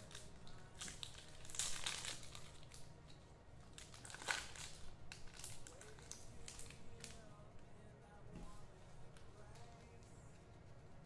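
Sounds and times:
wrapper crinkling: 0.0s - 3.0s, 3.7s - 7.4s.

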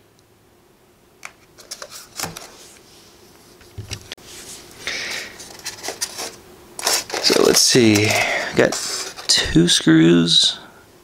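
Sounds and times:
foam rubbing scrape: 4.2s - 9.4s.

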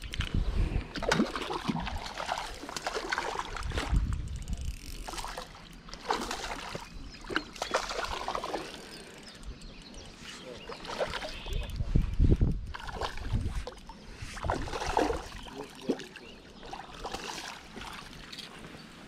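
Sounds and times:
fish splashing in water: 1.0s - 4.0s, 5.0s - 9.1s, 14.4s - 18.3s.

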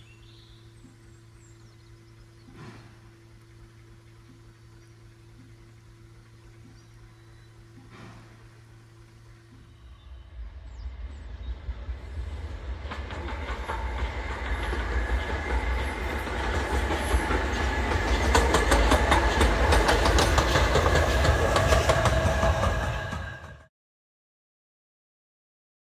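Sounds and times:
steam locomotive passing: 0.0s - 23.7s.

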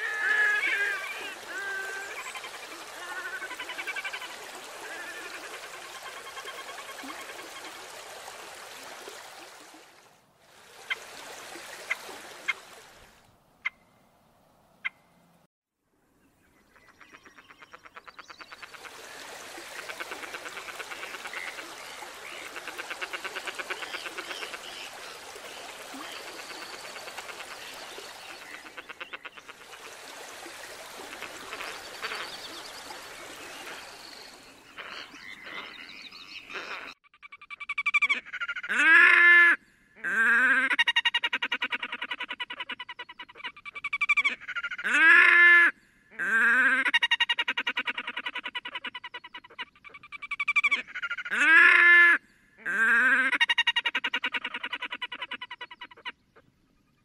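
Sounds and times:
grebe braying wails: 0.0s - 4.2s.

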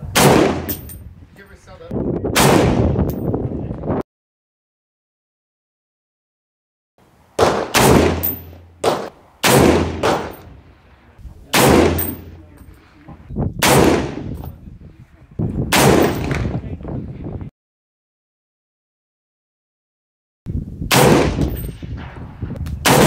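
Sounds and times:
fainter gunshot bangs: 0.1s - 0.7s, 2.4s - 2.9s, 7.4s - 10.4s, 11.5s - 12.2s, 13.6s - 14.3s, 15.7s - 16.5s, 20.9s - 22.2s
rifle shots echoing: 0.1s - 0.9s, 2.4s - 3.0s, 7.4s - 10.6s, 11.5s - 12.4s, 13.6s - 14.4s, 15.7s - 16.5s, 20.9s - 22.2s
high metallic clinks: 0.7s - 1.0s, 8.2s - 8.6s, 12.0s - 12.8s.

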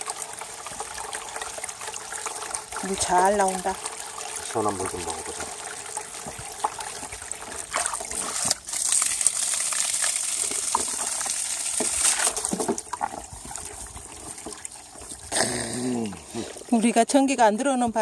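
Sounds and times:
water gushing into basin: 0.0s - 17.4s
water spraying on ground: 4.4s - 13.0s.

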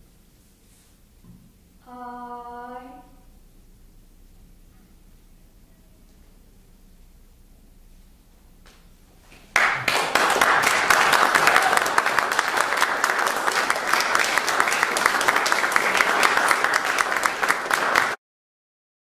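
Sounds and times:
audience applauding: 9.5s - 18.2s.

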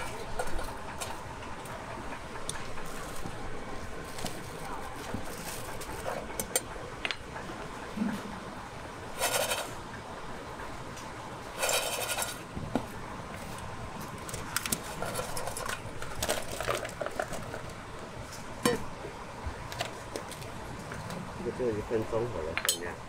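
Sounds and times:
rattling scrape: 9.1s - 9.8s, 11.5s - 12.5s
utensils clinking on dishes: 22.6s - 23.0s.

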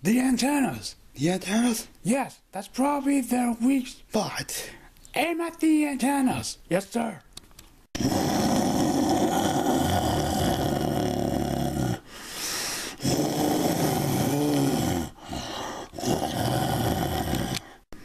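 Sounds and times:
monster growling: 8.0s - 12.1s, 13.0s - 17.6s.

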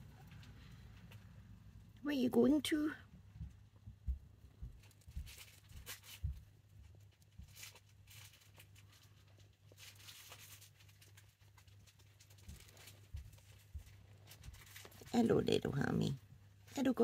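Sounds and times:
hamster rustling in bedding: 4.7s - 17.0s.

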